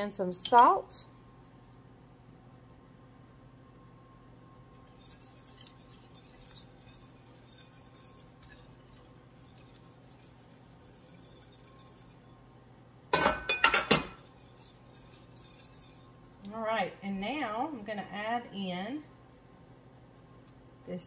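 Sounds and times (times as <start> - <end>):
utensil clinking against cookware: 13.2 - 16.1.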